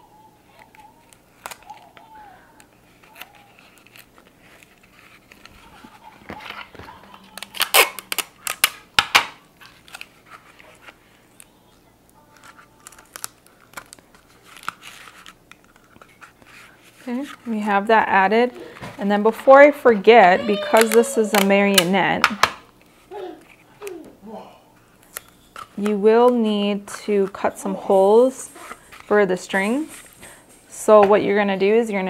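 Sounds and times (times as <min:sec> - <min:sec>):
cardboard roll crinkling: 0:00.7 - 0:08.6.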